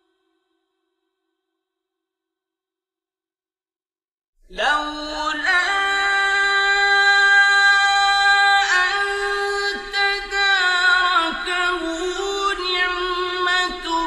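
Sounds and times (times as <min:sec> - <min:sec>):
man reciting melodically: 0:04.5 - 0:14.0.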